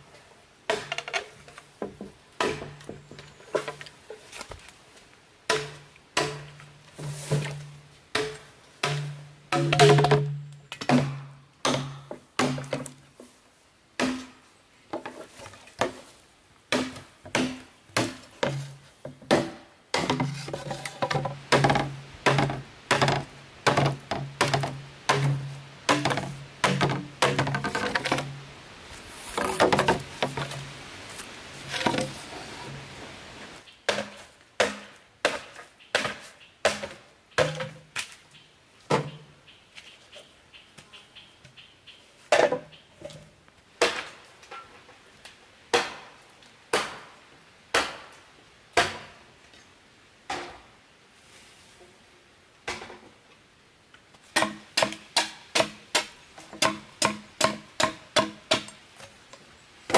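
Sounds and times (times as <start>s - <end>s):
bamboo sections clacking: 0.7s - 13.4s, 14.0s - 32.9s, 33.6s - 48.2s, 54.0s - 59.9s
machete chopping bamboo: 2.4s - 2.8s, 5.5s - 13.0s, 14.0s - 14.4s, 16.7s - 28.3s, 33.9s - 37.8s, 45.7s - 48.1s, 48.8s - 49.1s, 54.3s - 58.8s.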